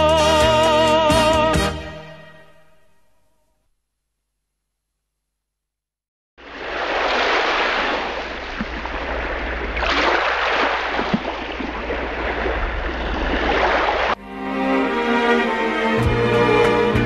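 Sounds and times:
sea waves washing onto shore: 0:06.4 - 0:14.2.

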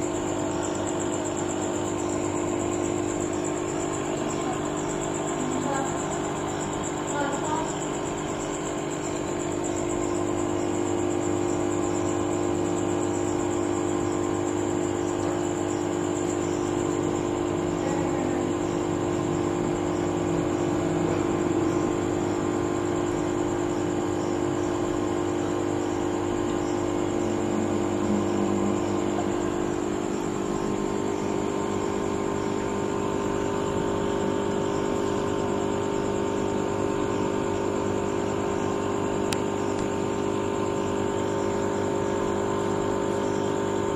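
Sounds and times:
aquarium pump humming: 0:00.0 - 0:43.9.

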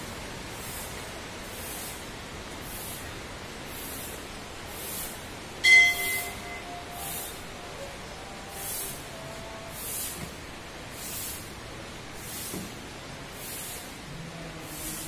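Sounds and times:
steady background hiss: 0:00.0 - 0:15.0
metal temple bell ringing: 0:05.6 - 0:07.2.

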